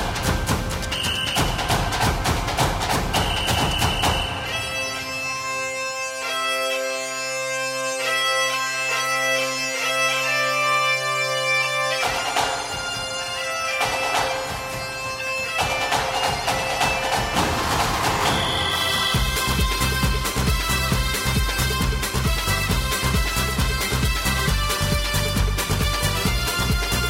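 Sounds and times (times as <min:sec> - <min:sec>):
drums: 0:00.0 - 0:04.9, 0:12.0 - 0:27.0
bagpipe-like melody: 0:00.0 - 0:27.0
held drone: 0:04.0 - 0:27.0.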